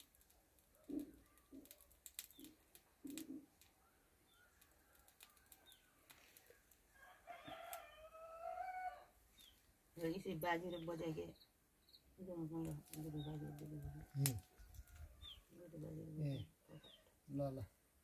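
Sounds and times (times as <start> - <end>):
rooster crowing faintly: 3.8 - 9.2, 13.5 - 15.5.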